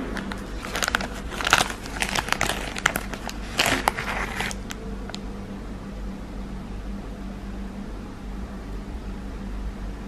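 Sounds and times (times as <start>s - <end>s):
plastic wrapper crinkling: 0.0s - 5.2s.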